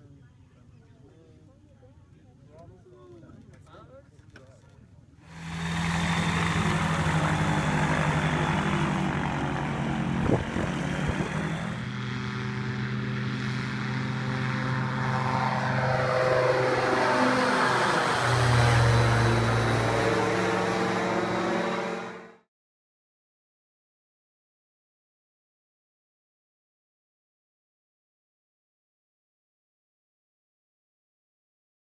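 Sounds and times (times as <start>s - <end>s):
engine and propeller at full power: 5.3s - 22.5s.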